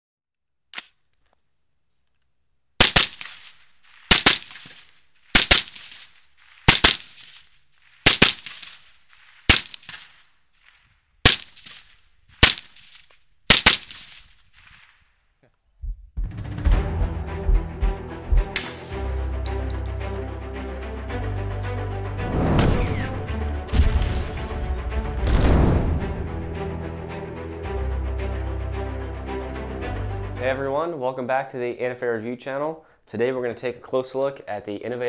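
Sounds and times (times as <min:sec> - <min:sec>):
suppressed rifle shots: 0:02.8 - 0:07.4, 0:08.0 - 0:10.2, 0:11.2 - 0:14.9
music: 0:16.2 - 0:31.0.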